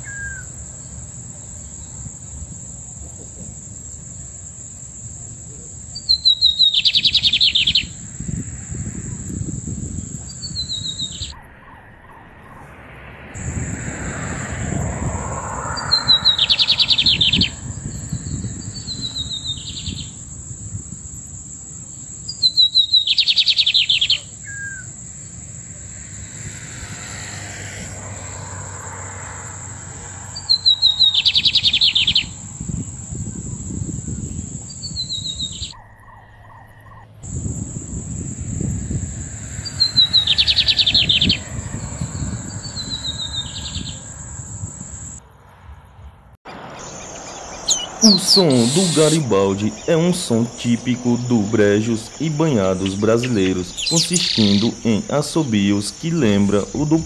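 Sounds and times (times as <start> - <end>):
low wind rumble: 0.0 - 57.0
bird singing rapid notes: 6.0 - 12.7, 15.4 - 20.3, 22.3 - 25.0, 30.3 - 37.0, 39.6 - 45.2, 46.5 - 57.0
high-pitched whine: 11.3 - 19.5, 46.5 - 57.0.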